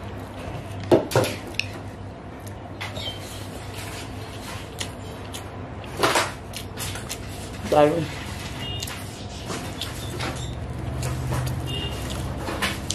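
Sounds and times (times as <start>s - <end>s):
chewing: 3.6s - 7.6s, 8.8s - 12.9s.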